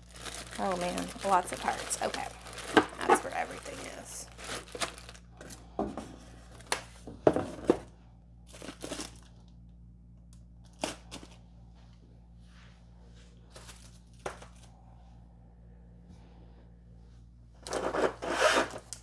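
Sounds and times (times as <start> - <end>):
plastic bags crinkling: 0.0 - 5.6, 8.4 - 9.5.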